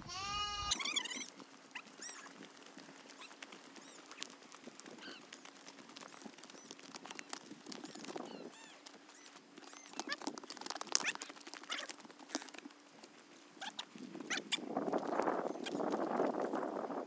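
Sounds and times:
sheep and lambs bleating: 0.0 - 2.2
small birds chirping: 0.0 - 17.0
footsteps on stony ground: 0.1 - 17.0.

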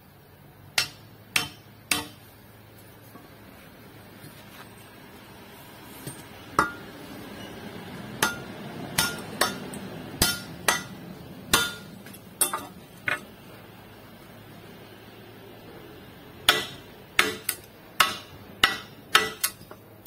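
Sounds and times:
hammer striking steel hoe: 0.8 - 2.3, 6.0 - 6.9, 8.2 - 13.3, 16.5 - 19.8.

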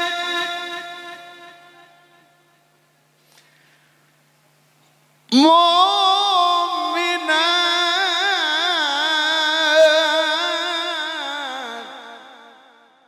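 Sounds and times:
man reciting melodically: 5.3 - 12.7.

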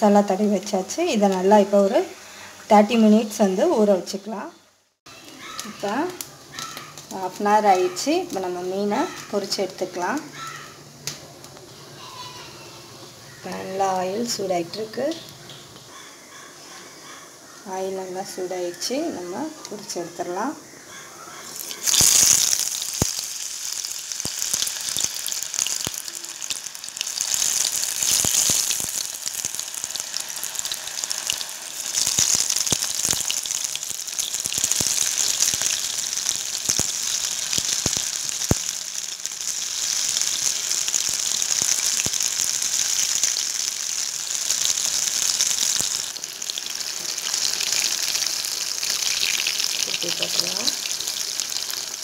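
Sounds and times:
fish deep-frying in oil: 5.1 - 10.8, 21.4 - 52.0
oil popping and crackling: 5.1 - 11.7, 21.5 - 52.0.

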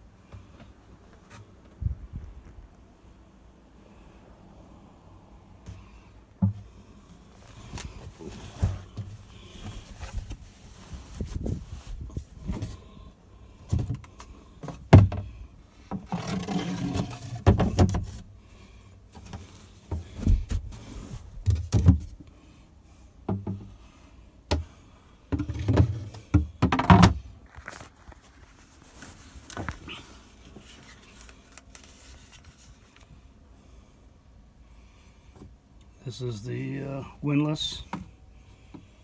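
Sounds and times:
thumps and knocks: 6.4 - 6.7, 13.7 - 15.3, 17.2 - 18.2, 21.4 - 22.1, 23.3 - 23.7, 25.3 - 27.2
rustling: 7.3 - 13.0, 27.4 - 33.2.

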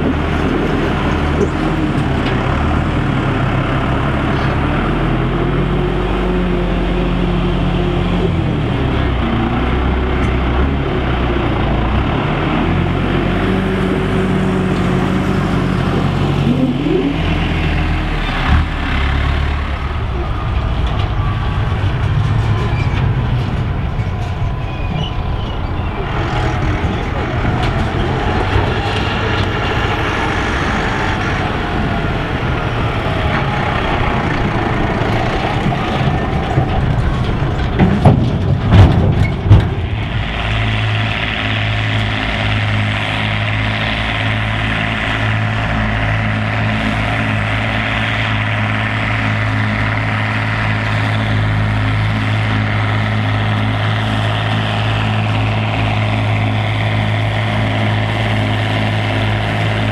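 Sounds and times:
tractor engine: 0.0 - 59.9
loud thumps: 35.6 - 40.2.

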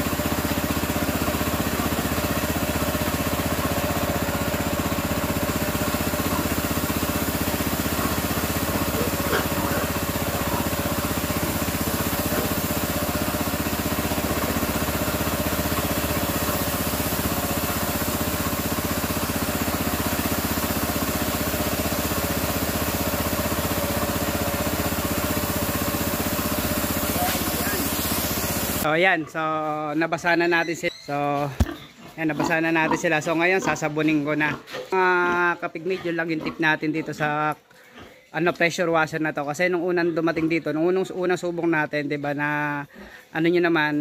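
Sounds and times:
water spraying: 0.0 - 28.9
pressure washer engine running: 0.0 - 29.0.

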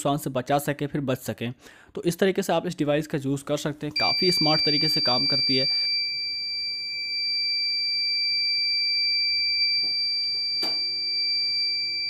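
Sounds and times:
high-pitched alarm buzzer: 4.0 - 12.0.

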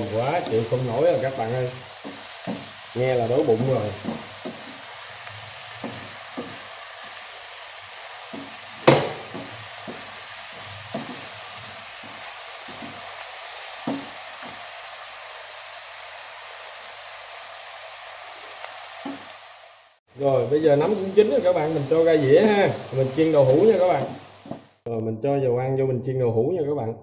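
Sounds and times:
wooden spatula scraping a pan: 0.0 - 7.1, 8.1 - 13.2
mushrooms sizzling in oil: 0.0 - 24.8.

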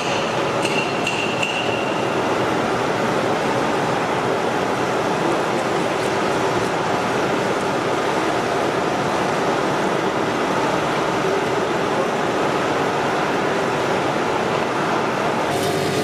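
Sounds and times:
extrusion machine running: 15.1 - 16.0.

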